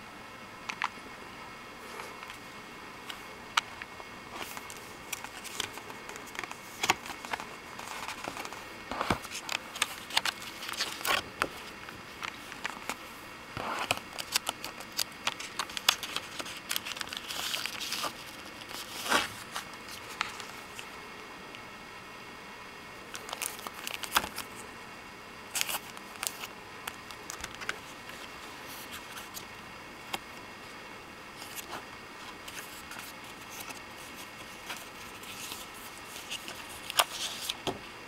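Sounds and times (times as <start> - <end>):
packaging crinkling: 3.6 - 13.0, 13.7 - 20.9, 23.1 - 24.6, 25.5 - 29.5, 31.4 - 37.7.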